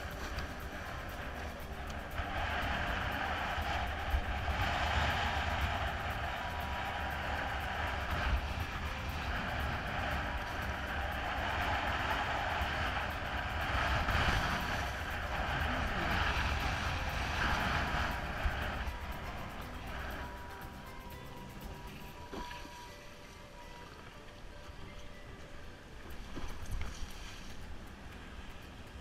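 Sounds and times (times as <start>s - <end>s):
wind buffeting microphone: 0.0s - 22.7s.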